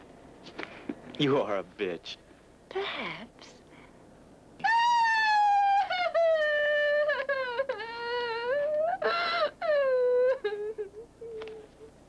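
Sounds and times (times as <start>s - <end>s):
woman wailing: 4.6s - 11.9s.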